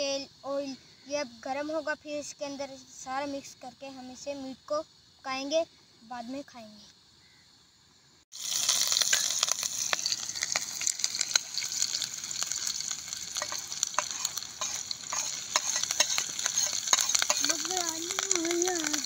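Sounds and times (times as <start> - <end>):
oil spattering crackles: 8.3 - 19.0
onions sizzling in oil: 8.3 - 19.0.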